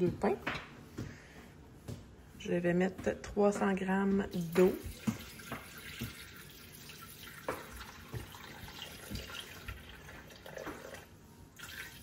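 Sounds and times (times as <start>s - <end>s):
water pouring into steel bowl: 4.9s - 12.0s.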